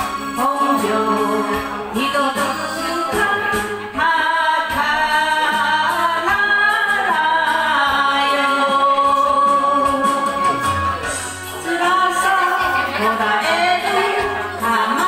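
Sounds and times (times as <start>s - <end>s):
woman singing: 0.0s - 10.6s, 11.5s - 15.0s
karaoke backing track: 0.0s - 15.0s.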